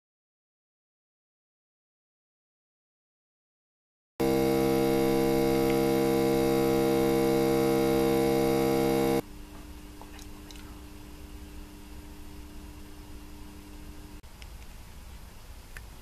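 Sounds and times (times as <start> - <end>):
loud stepper motor hum: 4.2 - 9.2
quiet stepper motor running: 4.2 - 9.2.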